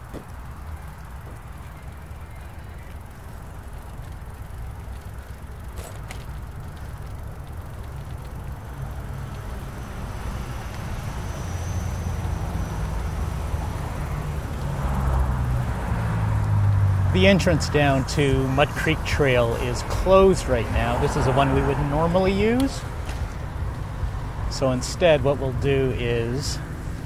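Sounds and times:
wind and bicycle riding noise: 0:00.0 - 0:27.0.

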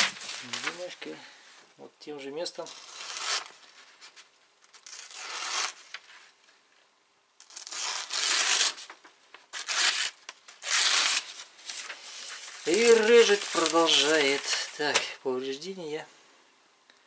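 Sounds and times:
axe slicing paper: 0:04.7 - 0:06.0, 0:07.4 - 0:08.9, 0:09.5 - 0:15.0.

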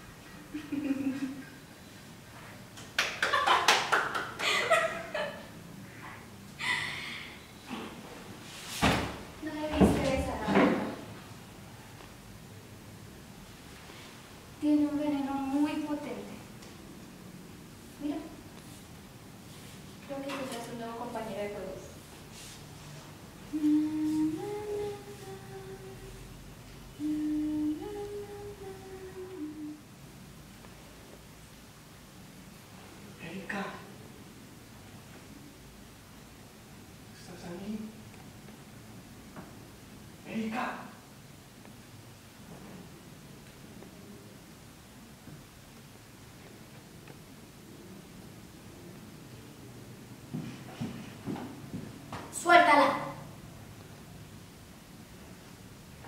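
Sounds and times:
woman laughing: 0:00.5 - 0:01.6, 0:03.3 - 0:05.6, 0:06.6 - 0:07.3
woman humming: 0:23.5 - 0:26.3, 0:26.9 - 0:29.8.

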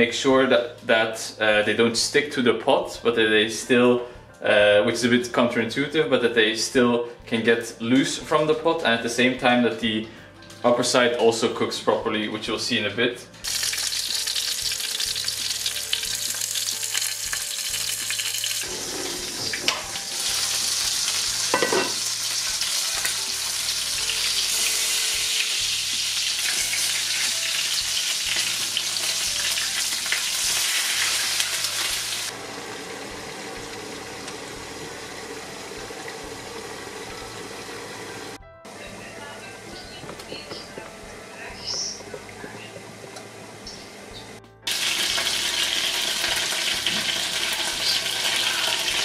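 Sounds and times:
dumplings sizzling in oil: 0:13.4 - 0:38.4, 0:44.7 - 0:49.0.

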